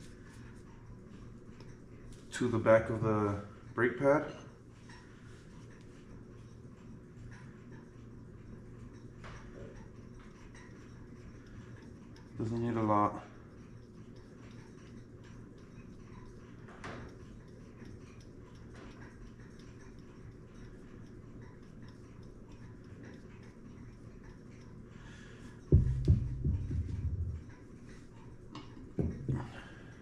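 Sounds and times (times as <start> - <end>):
brush ticking and scraping: 0.0 - 30.0
loud low knocking rumble: 25.7 - 27.5.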